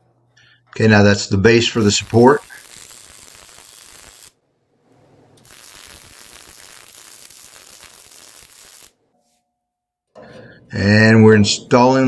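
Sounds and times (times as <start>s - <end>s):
welding arc crackling: 1.5s - 4.4s, 5.0s - 9.1s.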